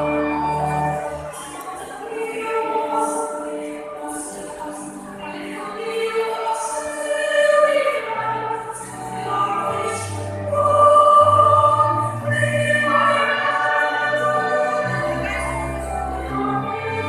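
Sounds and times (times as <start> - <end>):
pipe organ chords: 0.0 - 1.4, 8.6 - 17.0
people singing: 1.3 - 17.0.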